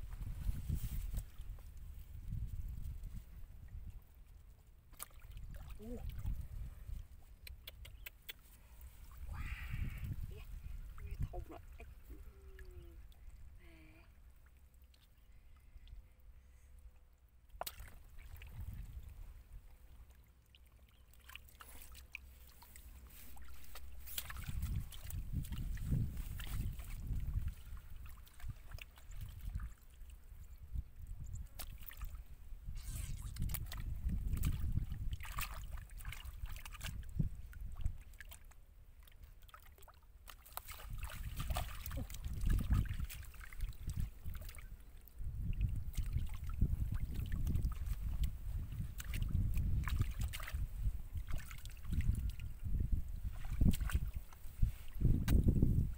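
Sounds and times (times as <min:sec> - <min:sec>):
wind rumble on microphone: 0:00.0 - 0:08.1, 0:08.8 - 0:14.0, 0:18.1 - 0:19.7, 0:23.1 - 0:38.2, 0:40.7 - 0:55.9
hands squelching in wet mud: 0:04.9 - 0:13.0, 0:17.5 - 0:19.1, 0:20.5 - 0:30.1, 0:31.4 - 0:55.7
hands digging in wet mud: 0:21.2 - 0:28.6, 0:32.8 - 0:37.0, 0:39.5 - 0:44.5, 0:53.3 - 0:55.6.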